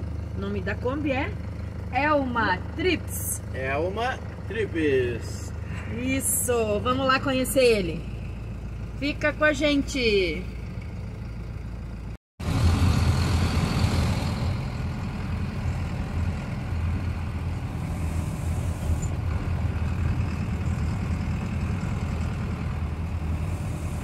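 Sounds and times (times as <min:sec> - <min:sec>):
engine and road rumble: 0:00.0 - 0:24.0.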